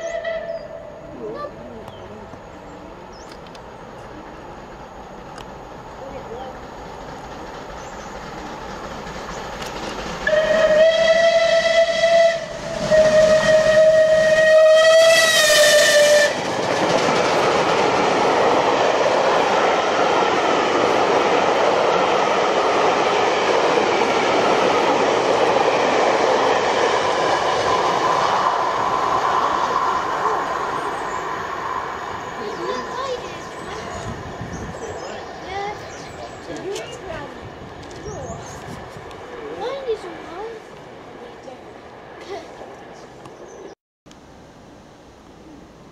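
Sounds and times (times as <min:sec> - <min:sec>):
steam locomotive whistle: 0:00.0 - 0:01.0, 0:10.2 - 0:16.5
steam train passing: 0:00.0 - 0:45.9.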